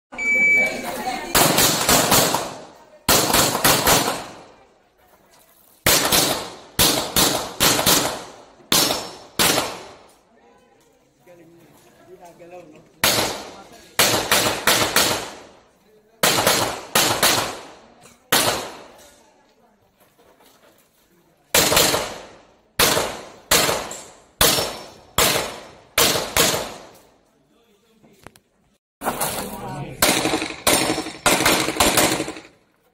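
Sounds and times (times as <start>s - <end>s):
pistol shots echoing: 1.3s - 4.5s, 5.9s - 10.1s, 13.0s - 15.6s, 16.2s - 19.0s, 21.5s - 27.0s, 30.0s - 32.5s.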